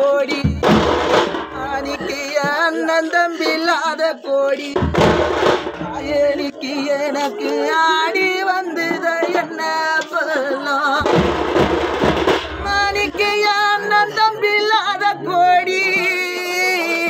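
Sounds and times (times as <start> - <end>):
man singing a wailing lament: 0.0 - 11.6, 12.5 - 17.0
drum rolls: 0.3 - 3.7, 4.7 - 6.6, 10.1 - 13.8.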